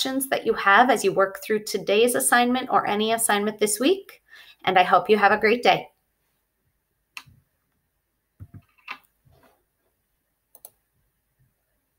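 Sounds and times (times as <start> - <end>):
computer mouse clicking: 10.5 - 10.8.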